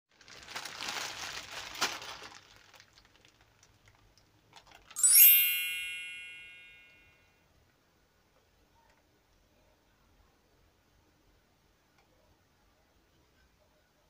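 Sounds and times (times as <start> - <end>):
plastic bags crinkling: 0.1 - 5.0
bright chime ringing: 5.0 - 7.2.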